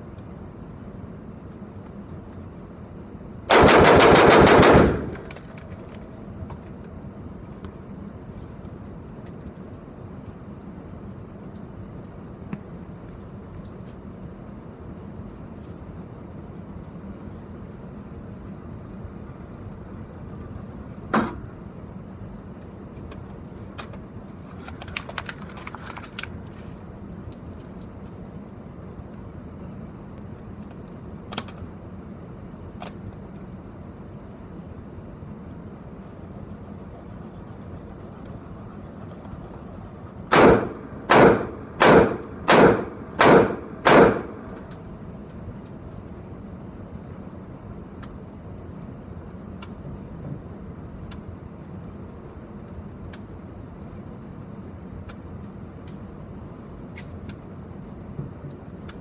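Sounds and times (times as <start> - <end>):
gunshots: 3.5 - 5.2, 40.3 - 44.5.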